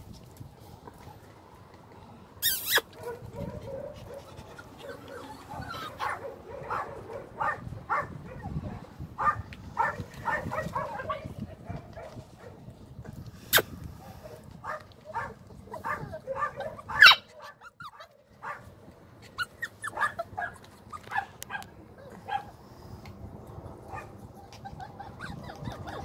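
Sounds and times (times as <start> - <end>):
puppy yipping and barking: 2.4 - 8.5, 14.7 - 18.6, 19.3 - 22.5, 23.9 - 26.0.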